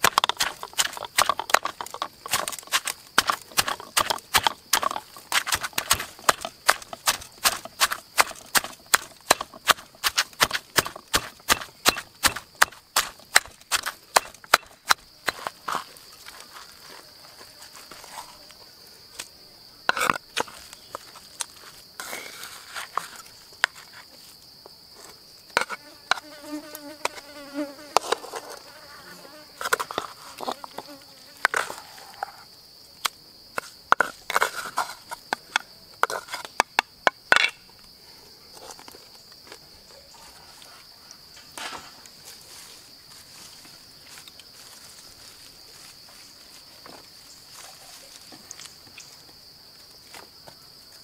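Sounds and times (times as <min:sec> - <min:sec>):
wooden spoon scraping stone mortar: 0:00.0 - 0:16.8, 0:29.6 - 0:32.4, 0:33.6 - 0:35.3, 0:36.0 - 0:36.5
insects droning: 0:00.0 - 0:51.0.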